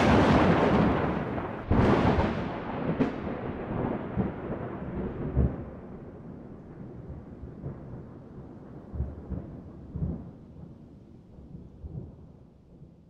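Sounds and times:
sharp thunder crack: 0.0s - 6.3s
rolling thunder rumble: 0.0s - 13.0s.

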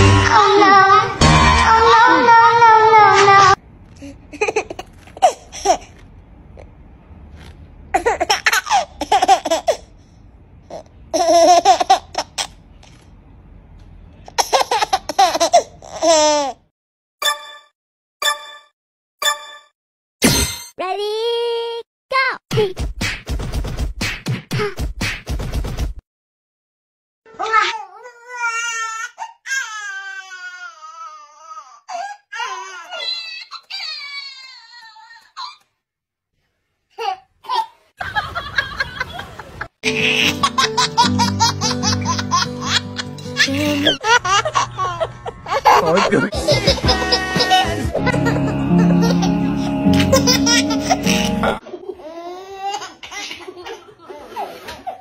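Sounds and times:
baby giggling: 4.3s - 6.0s, 8.0s - 9.9s, 10.7s - 12.6s, 14.4s - 16.6s, 37.0s - 55.0s
high-pitched crying: 39.8s - 45.8s.

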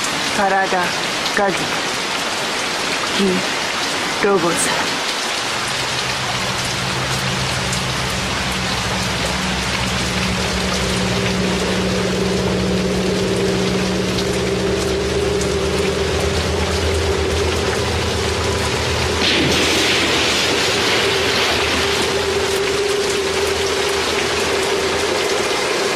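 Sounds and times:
steady rain falling: 0.0s - 25.9s
water churning: 5.2s - 25.9s
low sustained tones: 5.6s - 25.9s.

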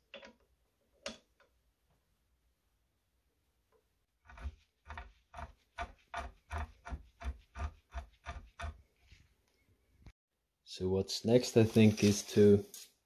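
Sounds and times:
gloved hand rubbing strokes: 11.4s - 12.9s.

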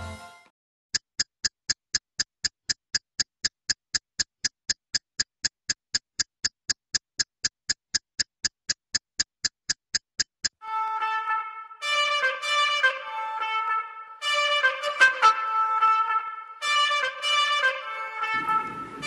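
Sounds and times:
clock-like ticking: 0.9s - 10.6s.

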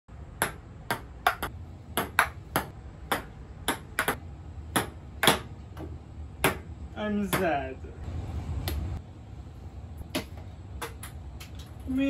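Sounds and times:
ping pong ball ticking: 0.4s - 5.4s.

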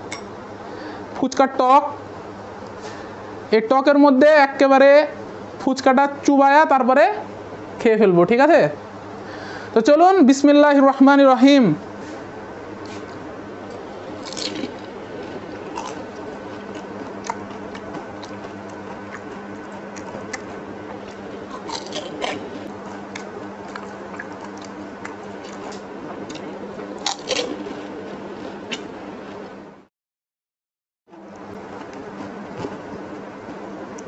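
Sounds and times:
steady low hum: 0.0s - 29.9s, 31.1s - 34.0s
crunching and wet chewing: 12.8s - 28.8s.

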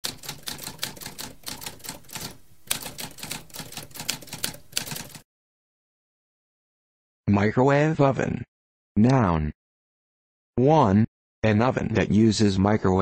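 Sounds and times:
typewriter keys typing: 0.0s - 5.2s.

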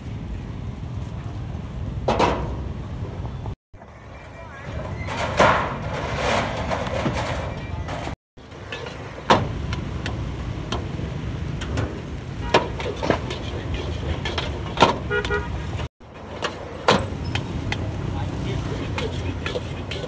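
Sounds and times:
rumble of passing traffic: 0.0s - 20.0s
knocks and clatter: 4.8s - 15.4s.

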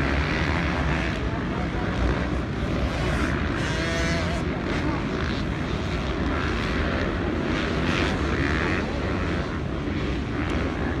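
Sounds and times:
motocross bike engines droning: 0.0s - 11.0s.

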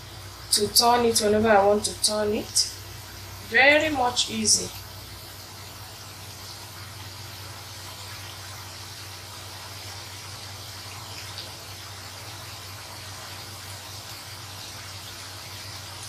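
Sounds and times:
low constant hum: 0.0s - 16.0s
oil sizzling while deep-frying: 0.0s - 16.0s.

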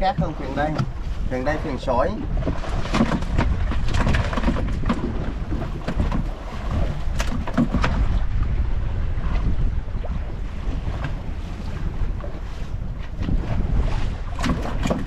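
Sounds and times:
waves: 0.0s - 15.0s
wind buffeting microphone: 0.0s - 15.0s
knocks and clatters: 2.5s - 5.1s.

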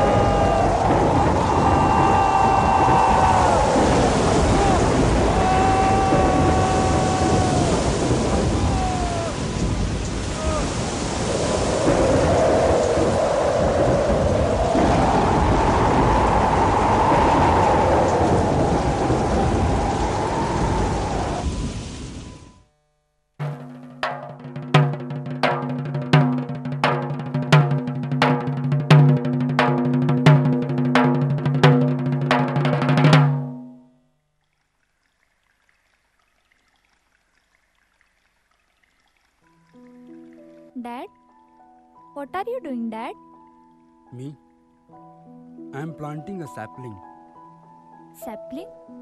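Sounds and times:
pitched drum-like beats: 0.0s - 9.4s, 23.4s - 33.5s.

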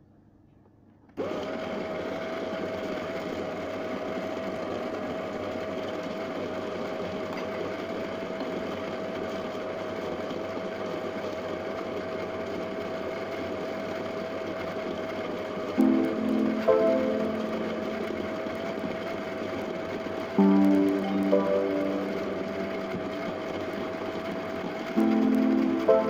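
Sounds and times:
coffee grinder whining: 1.2s - 26.0s.

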